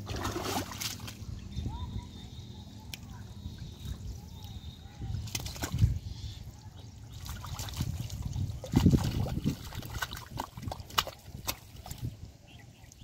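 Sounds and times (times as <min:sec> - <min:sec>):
water splashes and wet slaps: 0:00.0 - 0:01.2, 0:05.2 - 0:06.0, 0:07.1 - 0:12.2
hands sloshing in muddy water: 0:00.0 - 0:01.3, 0:03.5 - 0:06.1, 0:06.9 - 0:13.0.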